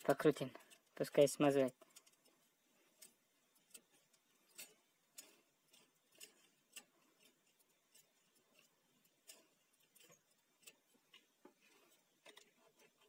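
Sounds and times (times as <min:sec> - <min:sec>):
fan spinning with light ticks: 0:00.0 - 0:13.0.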